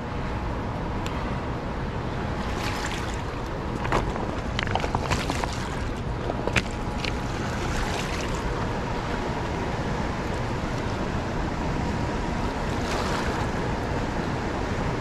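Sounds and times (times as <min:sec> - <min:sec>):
river water rushing over rocks: 0:02.0 - 0:14.0.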